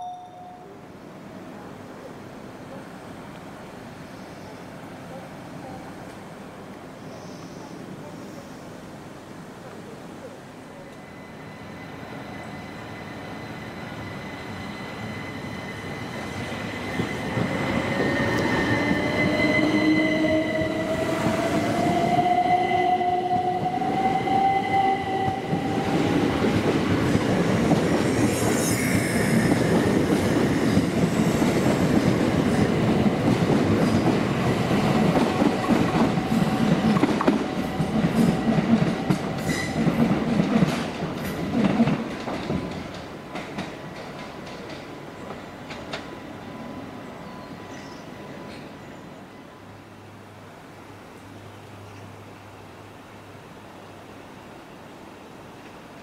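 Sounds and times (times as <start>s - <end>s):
train wheels rumbling on rails: 11.8s - 46.4s.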